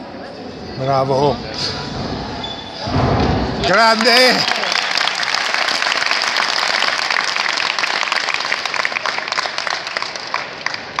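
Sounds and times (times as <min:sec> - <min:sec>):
spectators applauding: 0:03.6 - 0:11.0.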